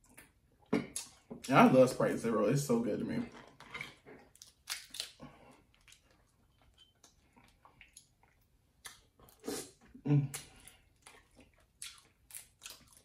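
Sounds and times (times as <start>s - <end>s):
crab shell cracking: 4.3s - 5.2s.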